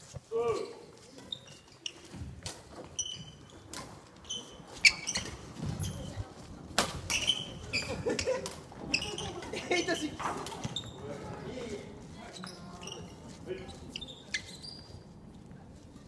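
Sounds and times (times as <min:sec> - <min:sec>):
shoes squeaking on wooden floor: 0:00.0 - 0:15.5
rackets striking shuttlecock: 0:06.7 - 0:07.5.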